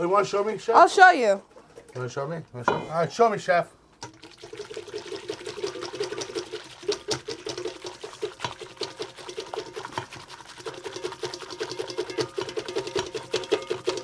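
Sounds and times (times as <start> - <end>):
wire whisk clattering in metal bowl: 5.7 - 14.0.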